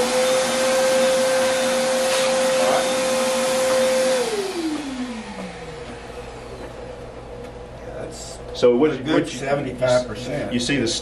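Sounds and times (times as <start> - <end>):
vacuum motor winding down: 0.0 - 7.4
shop vacuum running: 0.0 - 11.0.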